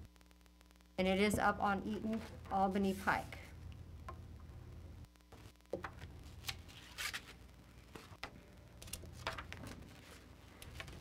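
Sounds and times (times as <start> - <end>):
papers rustling: 5.4 - 11.0.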